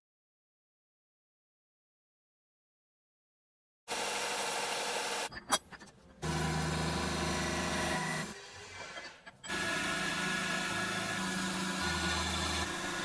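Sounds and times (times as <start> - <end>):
milling machine cutting metal: 3.9 - 5.3, 6.2 - 13.0.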